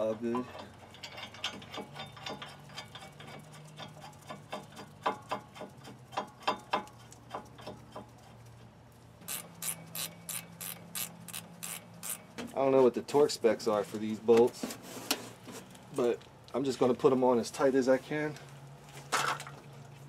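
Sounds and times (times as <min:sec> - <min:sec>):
socket ratchet clicking: 0:09.3 - 0:12.2.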